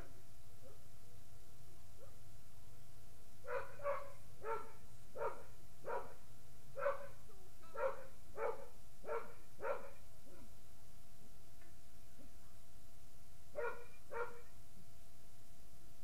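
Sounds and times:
dog barking: 0:03.5 - 0:06.2, 0:06.8 - 0:10.5, 0:13.6 - 0:14.5.

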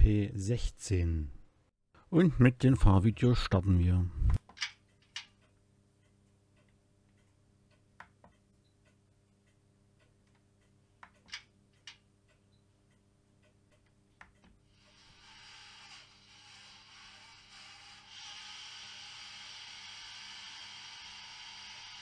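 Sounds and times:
faint irregular clicks: 0:04.4 - 0:14.7.

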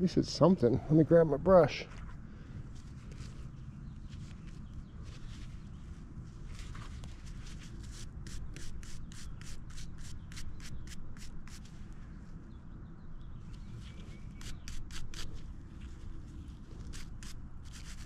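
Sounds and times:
brush scrubbing dirt: 0:06.7 - 0:11.8, 0:14.2 - 0:18.0.

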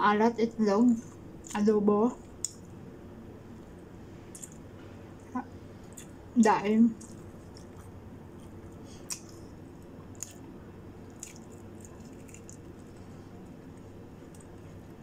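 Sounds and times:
steady low hum: 0:00.0 - 0:15.0
wet mouth clicks chewing: 0:04.3 - 0:04.6, 0:07.0 - 0:09.4, 0:11.1 - 0:13.1.

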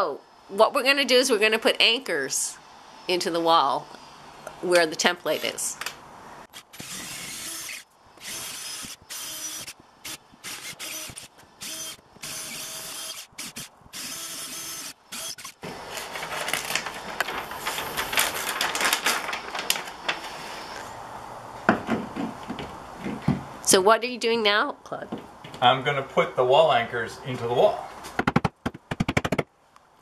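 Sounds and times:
drill bit grinding into wall: 0:06.5 - 0:16.1
cordless drill whirring: 0:06.6 - 0:16.8
hammer knocking on wall: 0:21.7 - 0:23.5.

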